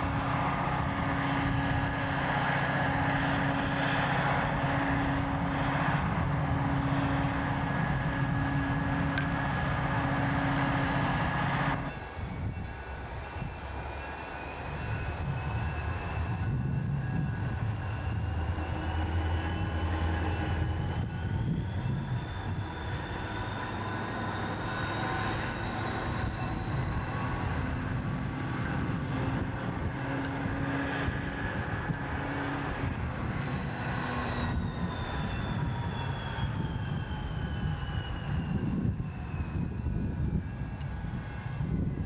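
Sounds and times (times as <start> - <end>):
diesel locomotive engine rumble: 0.0 - 42.0
high whine: 0.0 - 42.0.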